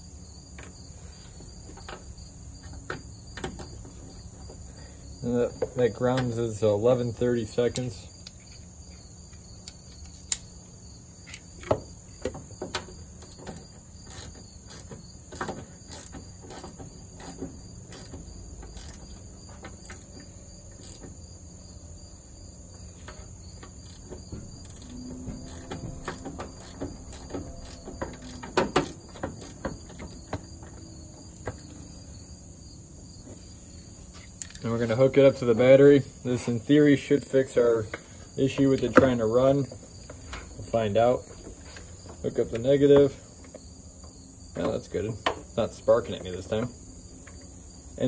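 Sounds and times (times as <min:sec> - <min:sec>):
crickets chirping: 0:00.0 - 0:48.0
ratchet metal clicks: 0:12.7 - 0:21.2, 0:23.0 - 0:30.2.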